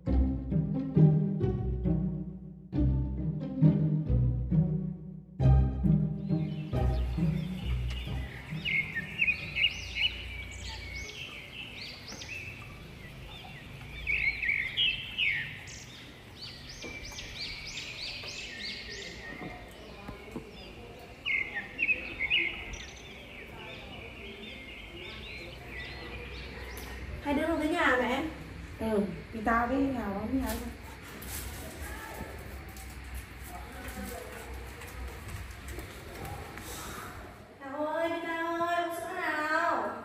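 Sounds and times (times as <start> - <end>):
high-pitched chirping calls: 6.1 - 27.1.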